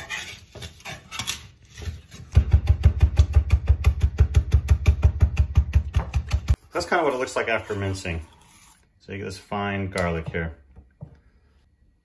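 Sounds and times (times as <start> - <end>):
knife scraping on cutting board: 0.0 - 2.3, 6.5 - 8.9
knife chopping on wood: 2.2 - 6.6.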